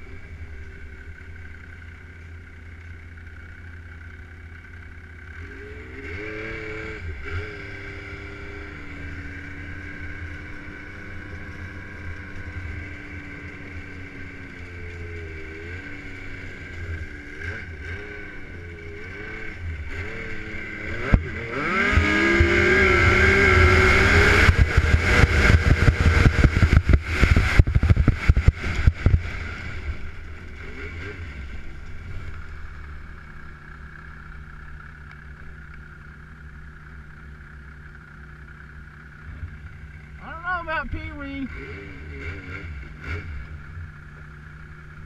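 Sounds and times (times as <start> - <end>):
snowmobile engine revving: 5.3 - 33.8, 38.6 - 45.0.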